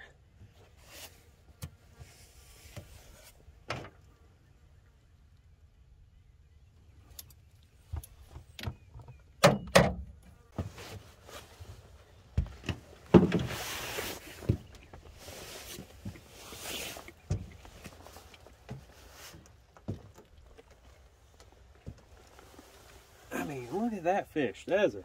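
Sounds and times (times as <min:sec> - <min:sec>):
rustling scrape: 0:10.6 - 0:12.0, 0:13.2 - 0:19.5.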